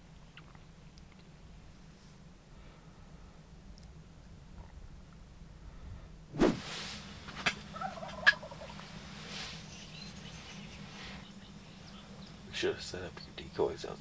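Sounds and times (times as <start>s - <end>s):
turkey gobbling: 7.4s - 9.0s.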